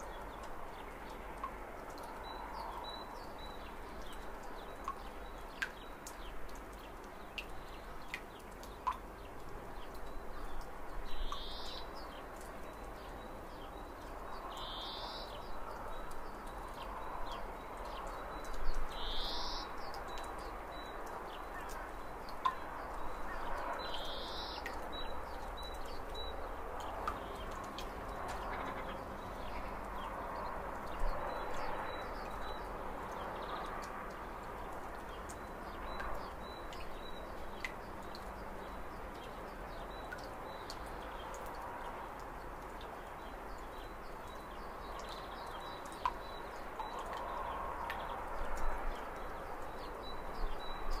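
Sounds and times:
small birds chirping: 0:09.8 - 0:34.0.

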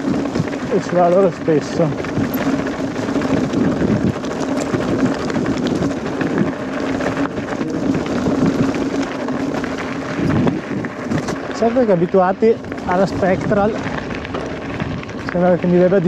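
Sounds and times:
wind on microphone: 0:00.0 - 0:15.6
bike clicking and clattering: 0:00.0 - 0:16.0
bike tyres on stony trail: 0:00.0 - 0:16.0.

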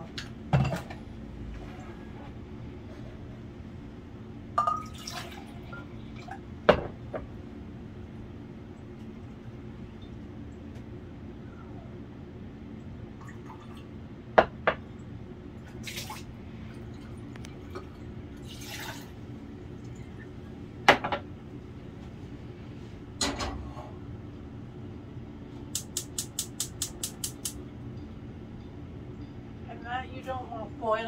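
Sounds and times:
water poured into a pot: 0:04.8 - 0:05.6, 0:18.4 - 0:19.1.

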